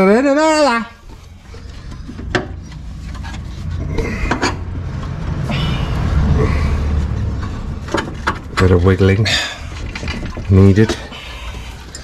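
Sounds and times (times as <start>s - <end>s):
metal clinking and scraping: 1.0s - 5.2s, 7.2s - 12.0s
low rumble: 1.1s - 11.5s.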